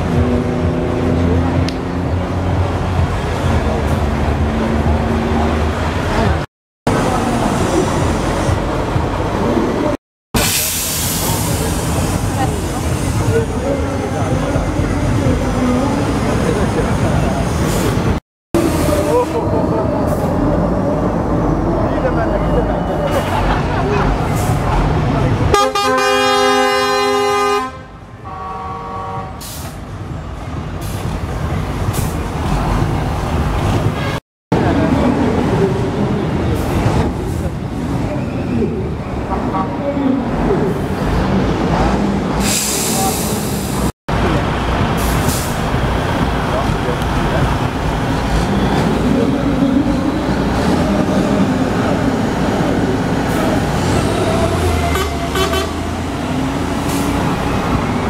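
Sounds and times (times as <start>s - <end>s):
diesel truck engines pulling hard: 0.0s - 27.6s, 28.2s - 58.0s
hissing bursts of air: 10.4s - 13.1s, 42.4s - 43.9s
air horn blast: 25.5s - 29.7s, 54.9s - 55.9s.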